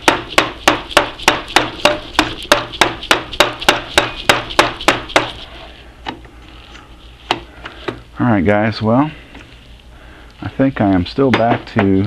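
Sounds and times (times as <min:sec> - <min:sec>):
hammer knocking on metal drift: 0:00.0 - 0:05.4.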